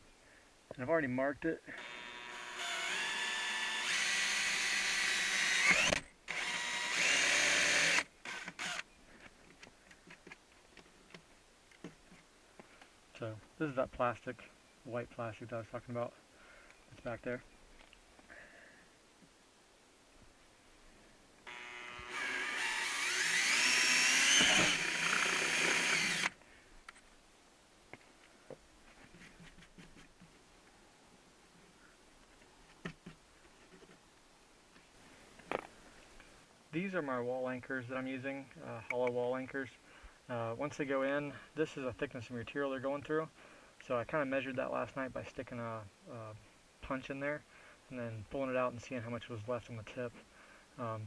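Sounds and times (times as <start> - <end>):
cordless drill boring: 1.8 - 8.8, 21.4 - 26.4.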